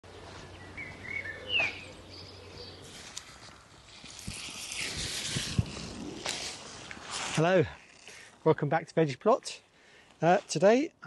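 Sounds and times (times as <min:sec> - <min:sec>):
birds chirping: 0:00.0 - 0:03.2
pea plants rustling: 0:02.6 - 0:09.3.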